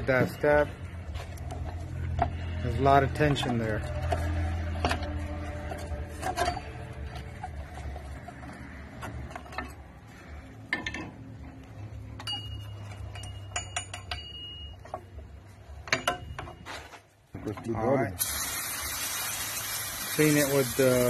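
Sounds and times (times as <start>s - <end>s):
metal brake parts clinking: 10.7s - 17.1s.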